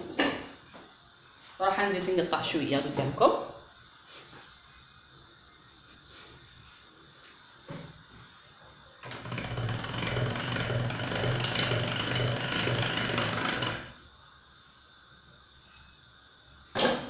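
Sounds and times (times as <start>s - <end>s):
hand-cranked pasta machine rattling: 9.0s - 14.0s.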